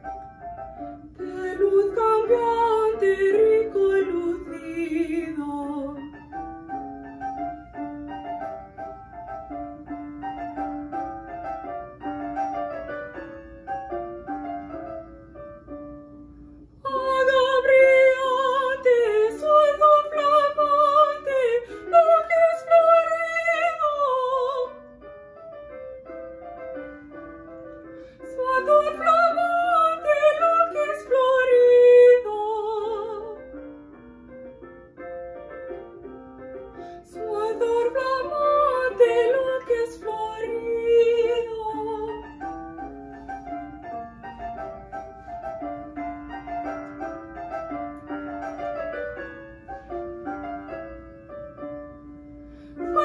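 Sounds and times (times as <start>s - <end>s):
piano accompaniment: 0.0s - 53.0s
woman singing classical aria: 0.7s - 6.4s, 16.6s - 25.1s, 28.0s - 33.8s, 36.8s - 44.4s, 52.7s - 53.0s.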